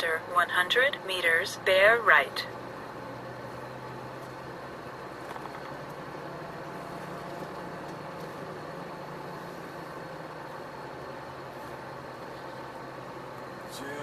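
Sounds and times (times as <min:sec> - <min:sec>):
truck engine humming: 0:00.0 - 0:14.0.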